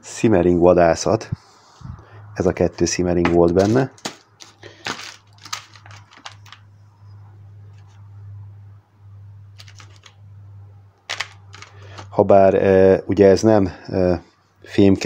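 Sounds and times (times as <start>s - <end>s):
steady low hum: 0.0s - 15.0s
small parts clattering by hand: 3.2s - 6.7s, 9.6s - 10.2s, 11.1s - 12.2s.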